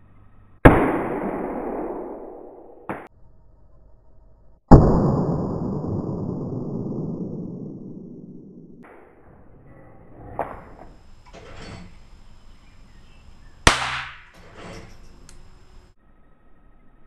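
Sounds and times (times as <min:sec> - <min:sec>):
pistol shot: 0:00.6 - 0:03.1, 0:13.6 - 0:14.3.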